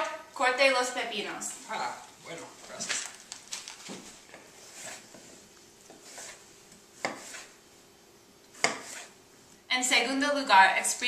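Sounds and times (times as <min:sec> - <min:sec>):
knife cutting on cutting board: 0:04.3 - 0:06.4, 0:07.0 - 0:07.6, 0:08.5 - 0:09.2.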